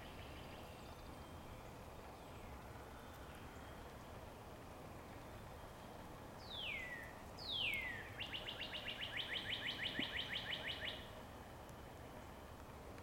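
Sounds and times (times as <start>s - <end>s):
songbird singing: 0.0s - 13.0s.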